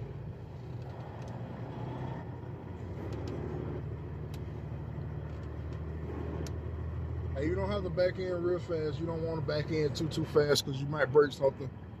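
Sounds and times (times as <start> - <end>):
diesel engine low rumble: 0.0 - 12.0
faint clicks: 0.7 - 1.4.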